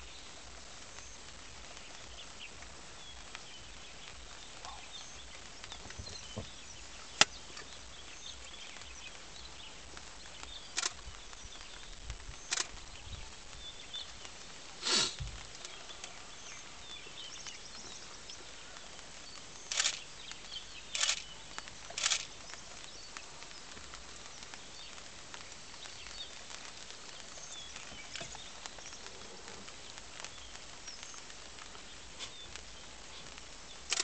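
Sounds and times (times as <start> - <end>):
birds chirping: 0.0 - 34.0
drizzle hiss: 14.7 - 16.2.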